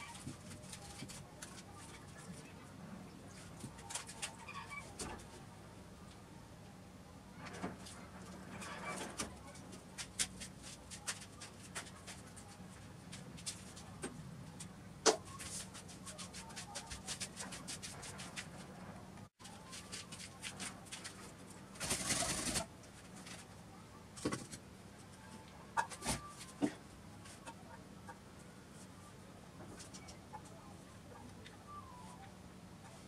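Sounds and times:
rustling noise: 0:00.0 - 0:02.5, 0:07.4 - 0:23.6.

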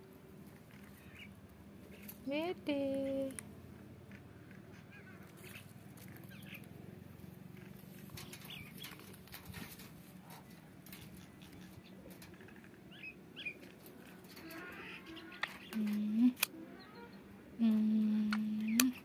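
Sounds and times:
low steady hum: 0:00.0 - 0:19.0
faint scattered clicks: 0:02.9 - 0:03.5, 0:15.3 - 0:16.5, 0:17.7 - 0:19.0.

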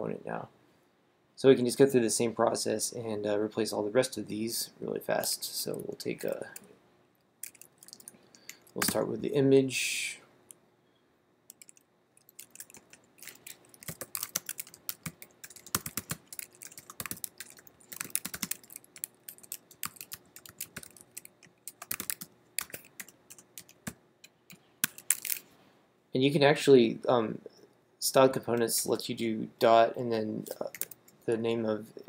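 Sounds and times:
keyboard typing: 0:07.4 - 0:09.0, 0:11.5 - 0:25.4, 0:30.6 - 0:31.0.

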